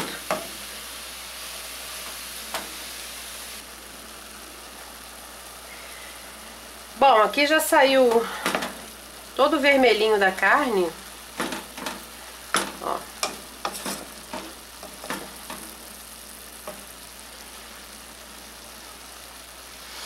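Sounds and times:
meat sizzling in a pot: 0:00.0 - 0:20.0
wooden spoon scraping a pot: 0:12.6 - 0:15.5.

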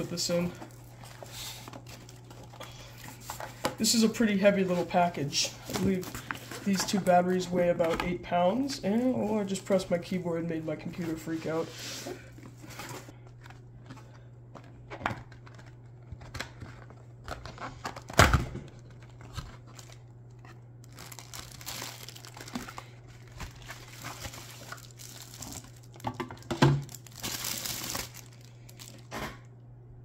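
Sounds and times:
cardboard and plastic rustling: 0:00.0 - 0:29.2.

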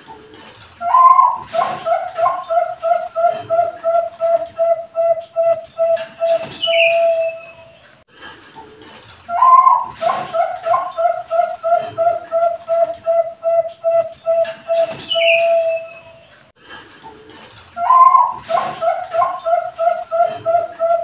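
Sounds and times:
dove cooing: 0:00.8 - 0:07.8, 0:09.3 - 0:16.3, 0:17.8 - 0:21.0.

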